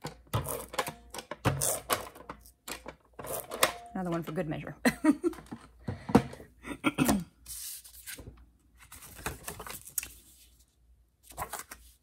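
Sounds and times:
paper sliding and rubbing: 7.5 - 8.2.

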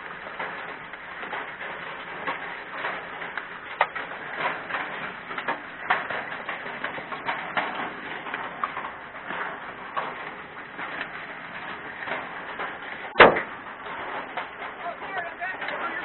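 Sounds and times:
hailstones knocking on a car: 0.0 - 16.0
rain hissing on a car: 0.0 - 16.0.

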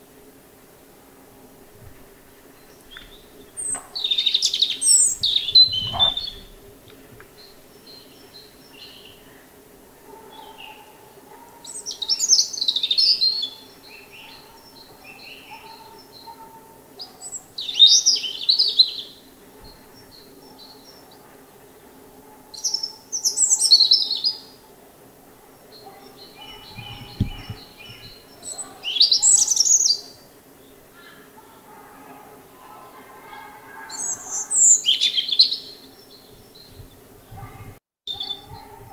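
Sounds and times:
robin singing warbling phrases: 2.6 - 6.6, 25.8 - 30.8, 33.2 - 38.9.

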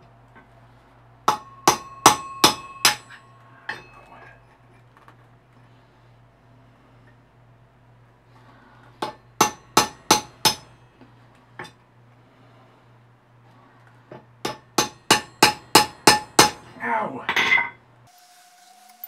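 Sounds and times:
hammer striking steel punch: 1.3 - 4.0, 9.0 - 10.7, 14.5 - 16.6.

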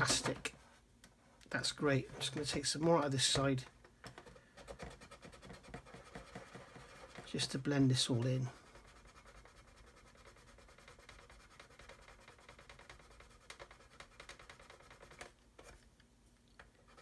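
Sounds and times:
sanding stick rasping on plastic: 4.6 - 7.6, 8.6 - 15.3.

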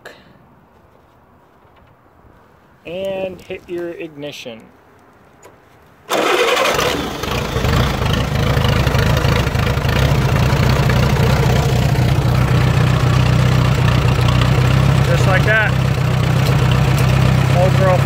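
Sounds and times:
tractor engine cranking and running: 5.4 - 18.0.

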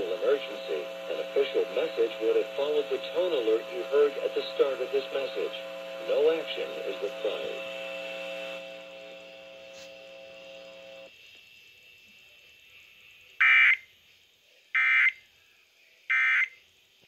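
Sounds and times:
harsh electronic data bursts: 0.0 - 9.6
low steady hum: 0.0 - 11.4.

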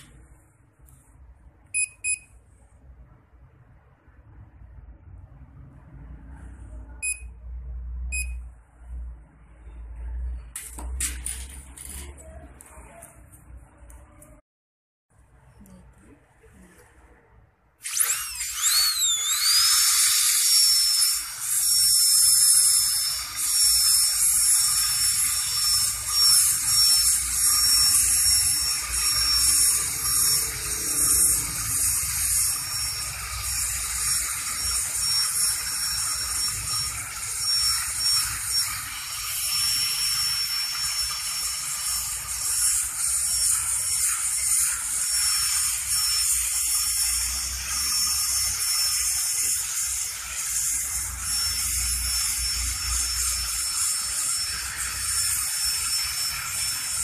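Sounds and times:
dental drill high whine: 17.8 - 57.0.

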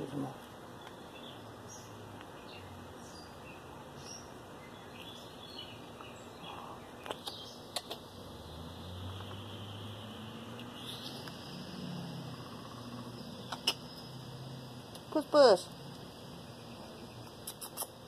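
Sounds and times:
outdoor background hiss: 0.0 - 18.0
faint bird chirps: 9.0 - 15.7.

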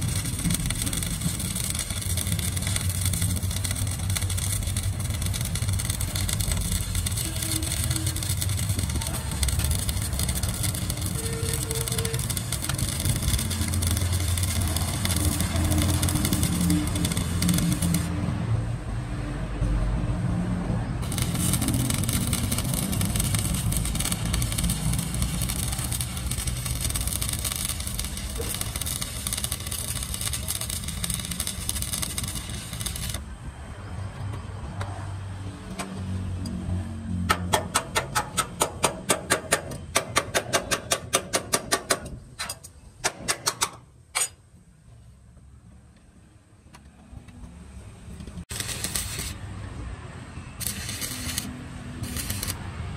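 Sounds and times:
chipping hammer tapping weld: 0.0 - 18.1, 21.0 - 33.2, 37.3 - 42.2, 48.5 - 49.4, 50.6 - 52.6
welding arc crackling: 0.0 - 18.4, 21.0 - 33.3, 48.4 - 49.6, 50.6 - 52.7.

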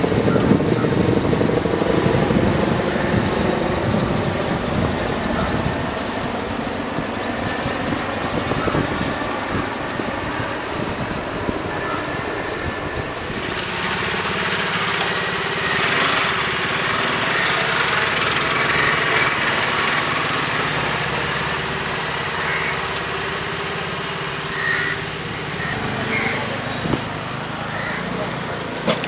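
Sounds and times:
traffic noise: 0.0 - 29.0
small engine idling: 13.2 - 29.0.

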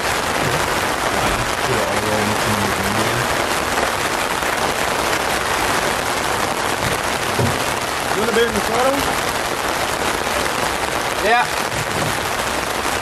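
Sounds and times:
steady rain: 0.0 - 13.0
low voices murmuring: 0.2 - 3.3.

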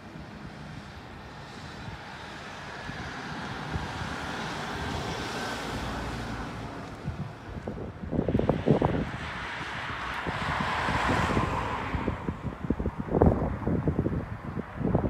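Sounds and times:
wind buffeting microphone: 0.0 - 15.0.

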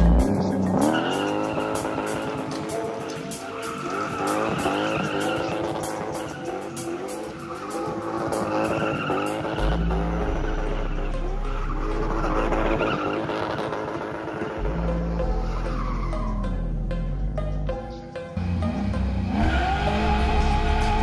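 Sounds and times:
tyres squealing on asphalt: 0.0 - 16.6
car engine revving: 0.0 - 17.8, 18.4 - 21.0
music with deep bass: 0.0 - 21.0.

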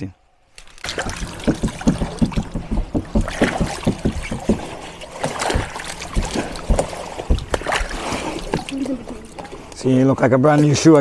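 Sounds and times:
water splashing and sloshing: 0.4 - 11.0
knocks and thumps: 0.9 - 8.7.

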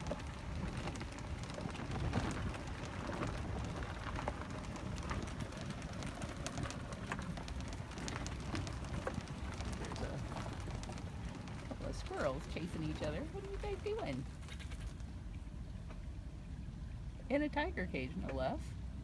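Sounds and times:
crackles from brushing fronds: 0.0 - 15.2
wind rumble on microphone: 0.0 - 19.0.

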